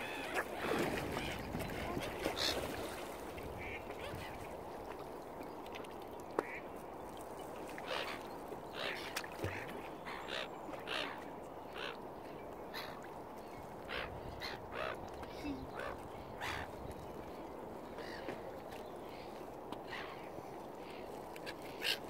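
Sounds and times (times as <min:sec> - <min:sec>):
waterfowl calling: 0:00.0 - 0:03.0, 0:07.8 - 0:12.0, 0:13.8 - 0:16.8, 0:21.0 - 0:22.0.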